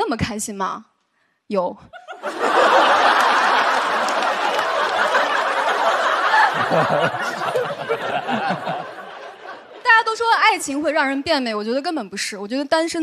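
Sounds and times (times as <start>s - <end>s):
audience laughing: 2.0s - 10.1s
audience applause: 2.3s - 9.4s.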